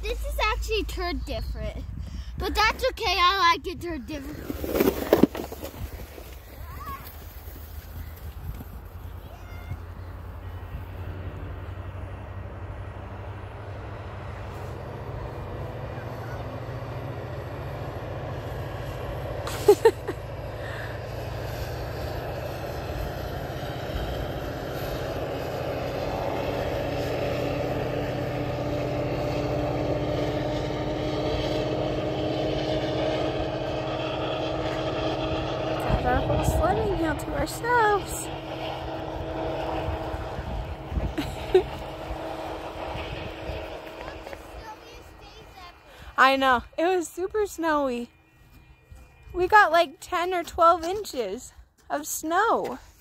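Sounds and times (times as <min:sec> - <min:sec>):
low engine drone: 0:09.7 - 0:49.4.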